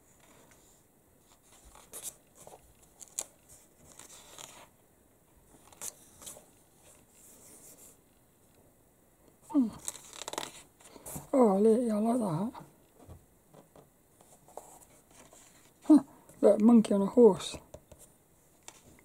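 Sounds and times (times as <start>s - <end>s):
magazine pages rustling: 1.2s - 4.7s, 9.7s - 11.3s.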